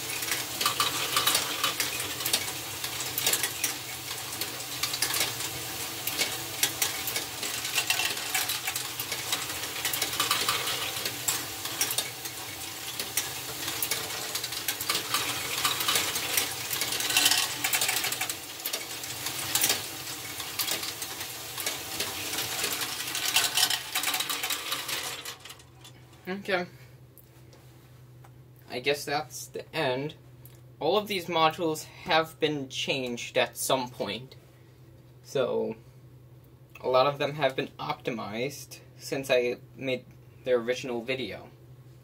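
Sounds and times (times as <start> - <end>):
plastic balls clattering: 0.0 - 26.0.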